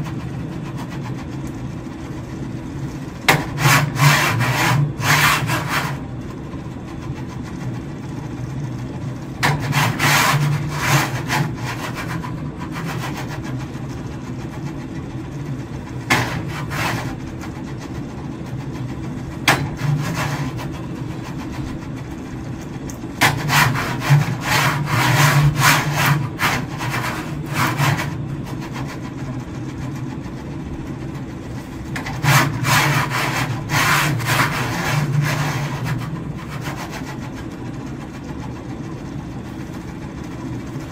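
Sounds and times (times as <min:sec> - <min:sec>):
motor hum: 0:00.0 - 0:40.9
cart sliding on metal rail: 0:09.4 - 0:13.4, 0:23.2 - 0:28.8, 0:32.0 - 0:37.2.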